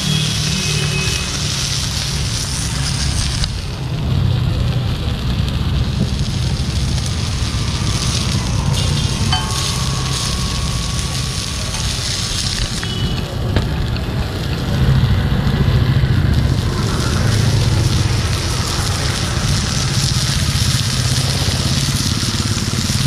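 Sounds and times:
fish sizzling on a griddle: 0.0 - 23.0
steady low rumble: 4.8 - 20.3.

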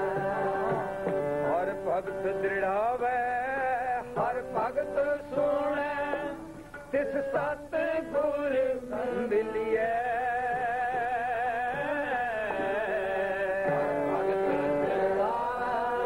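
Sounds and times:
harmonium drone: 0.0 - 2.6, 12.5 - 16.0
man singing with vibrato: 0.0 - 16.0.

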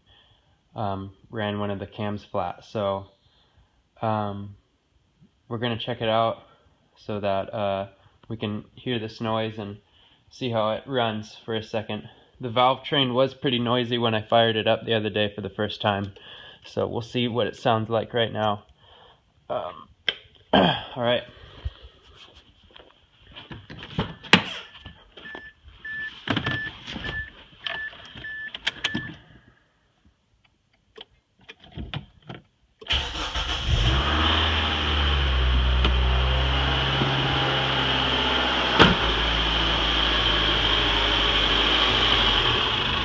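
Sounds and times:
car engine starting and idling: 32.8 - 43.0.

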